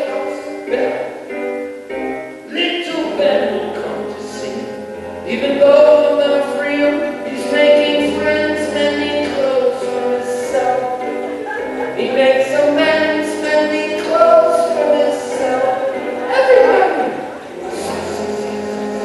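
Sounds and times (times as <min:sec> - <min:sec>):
acoustic guitar: 0:00.0 - 0:19.0
person singing long notes: 0:02.4 - 0:19.0.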